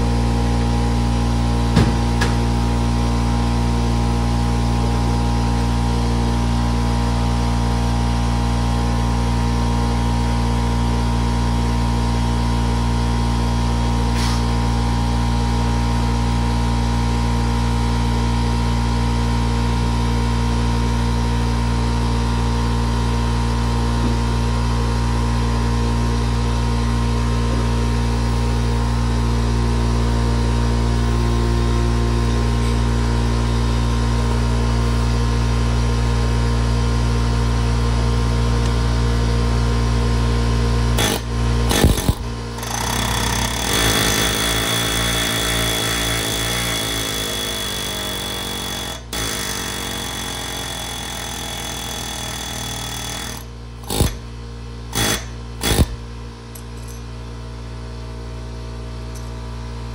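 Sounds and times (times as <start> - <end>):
sharp knocks: 1.7 - 2.4
motor humming: 41.0 - 54.2.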